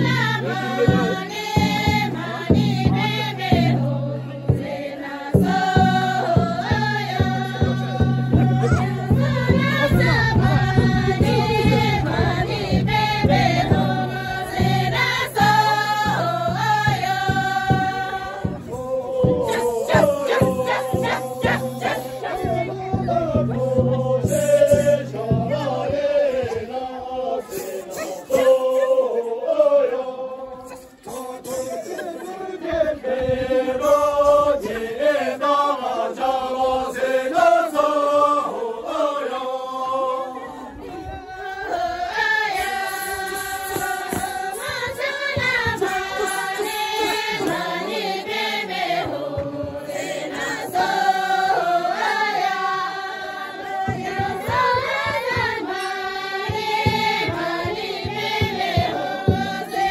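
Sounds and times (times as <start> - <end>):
group of voices singing: 0.0 - 59.9.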